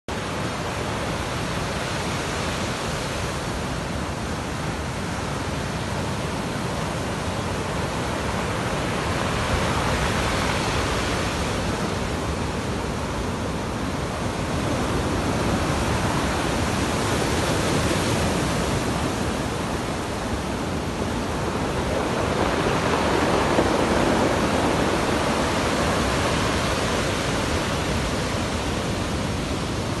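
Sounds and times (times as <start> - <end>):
surf breaking on shore: 6.4 - 30.0.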